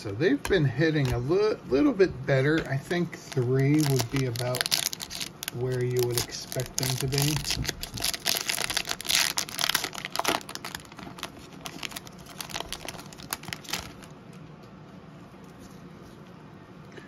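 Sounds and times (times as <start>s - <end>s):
wrapper crinkling and tearing: 3.2s - 14.1s.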